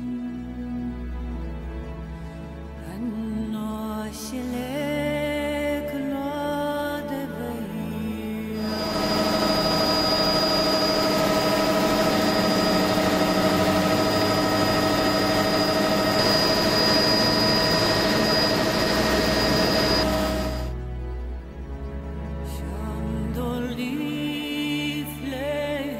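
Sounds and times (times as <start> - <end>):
helicopter turbine engine: 8.6 - 20.7.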